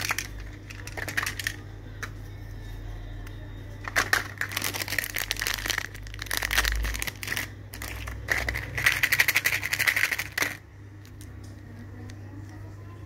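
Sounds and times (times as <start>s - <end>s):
plastic toys clicking and rattling: 0.0s - 1.7s, 3.8s - 11.4s.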